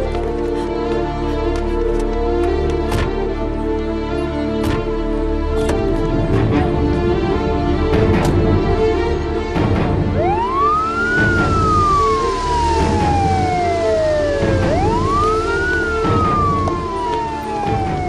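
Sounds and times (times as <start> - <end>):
background music: 0.0 - 18.0
ambulance siren wailing: 10.0 - 18.0.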